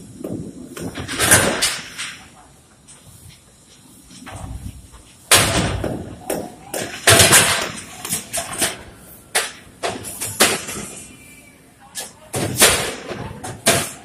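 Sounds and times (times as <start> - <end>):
metal knocks bangs and clatter: 5.3 - 8.8.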